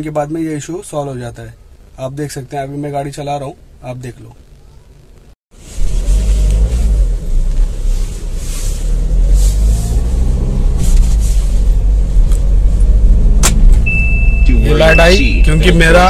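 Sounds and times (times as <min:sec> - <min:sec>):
car engine and road rumble: 0:00.0 - 0:16.0
sharp click: 0:13.4 - 0:13.8
seat-belt warning beep: 0:13.8 - 0:16.0.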